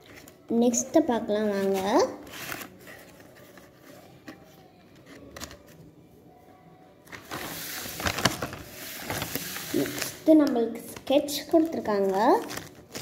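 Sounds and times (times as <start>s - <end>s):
cardboard rustling: 1.6s - 5.8s, 7.1s - 10.2s.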